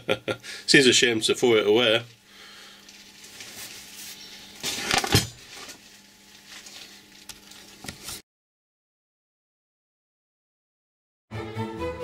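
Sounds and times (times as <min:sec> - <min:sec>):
faint rustling: 0:02.5 - 0:08.2.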